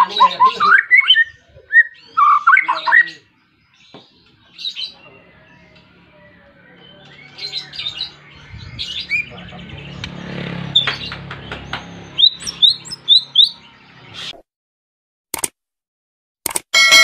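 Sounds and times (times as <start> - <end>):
bird singing: 0.0 - 14.3
sharp clicks: 15.3 - 15.6, 16.4 - 16.7.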